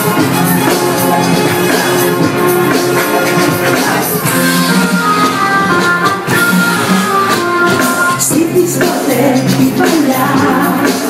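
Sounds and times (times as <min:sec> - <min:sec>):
loud dance music with singing: 0:00.0 - 0:05.0, 0:07.8 - 0:11.0.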